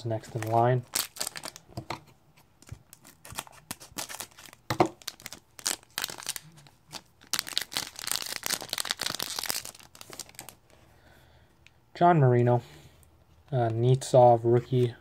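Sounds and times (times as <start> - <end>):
foil wrapper crinkling and tearing: 0.3 - 1.6, 2.9 - 10.6.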